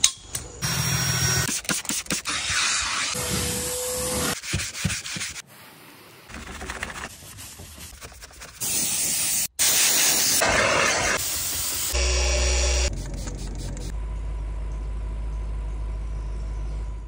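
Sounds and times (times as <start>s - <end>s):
steam cleaner hissing: 8.6s - 13.9s.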